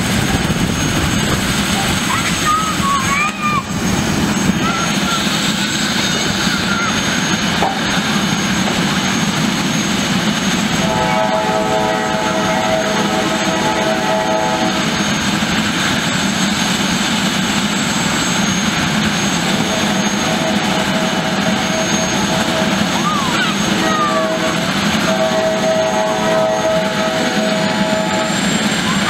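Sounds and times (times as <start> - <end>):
helicopter turbine engine whine: 0.0 - 29.0
steady multi-tone hum: 0.0 - 29.0.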